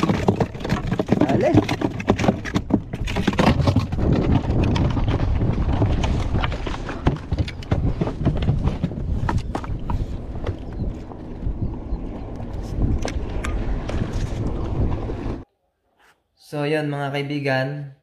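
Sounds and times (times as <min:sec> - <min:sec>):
gear knocking and clattering: 0:00.0 - 0:11.2
wind buffeting microphone: 0:00.0 - 0:15.4.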